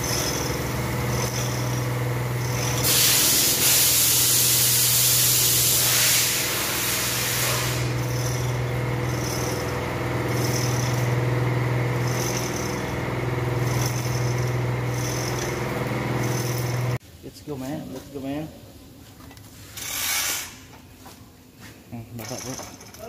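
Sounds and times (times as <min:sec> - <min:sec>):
low machine hum: 0:00.0 - 0:17.0
pressurised air hissing: 0:02.6 - 0:08.1.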